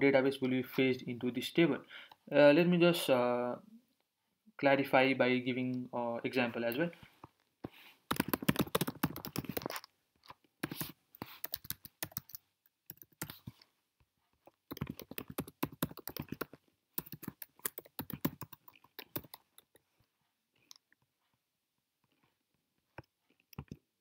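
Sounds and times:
typing on keyboard: 8.1s - 9.9s, 10.6s - 13.5s, 14.7s - 19.8s, 23.5s - 23.8s.

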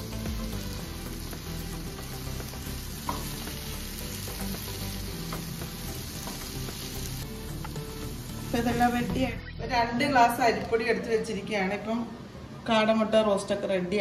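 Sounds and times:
masala sizzling: 0.0s - 10.5s.

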